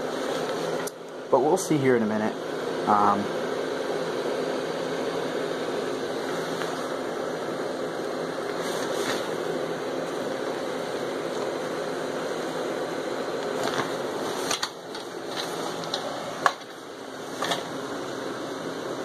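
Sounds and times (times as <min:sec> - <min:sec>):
electric blower fan running: 0:00.0 - 0:19.0.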